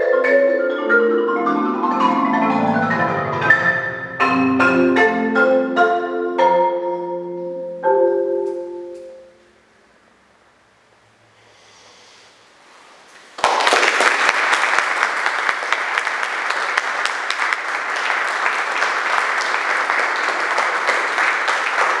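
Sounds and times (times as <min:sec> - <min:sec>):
audience applause: 0:13.4 - 0:22.0.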